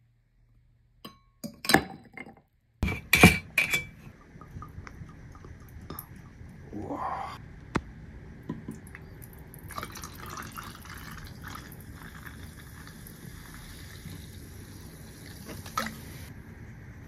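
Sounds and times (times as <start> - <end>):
liquid pouring over ice: 9.3 - 14.0.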